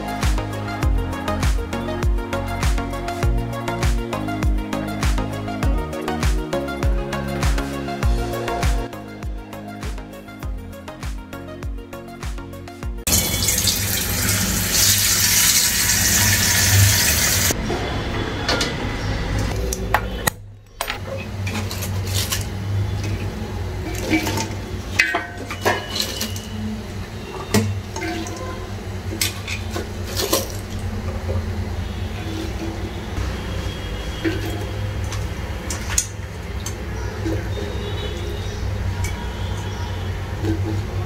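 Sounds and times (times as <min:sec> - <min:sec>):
water running: 0:13.0 - 0:17.6, 0:21.6 - 0:33.0
vegetables dropping into metal pot: 0:23.9 - 0:26.5.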